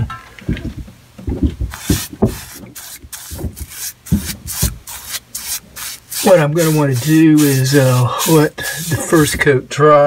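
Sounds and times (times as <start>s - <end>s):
paintbrush strokes on metal pipe: 1.7s - 9.5s.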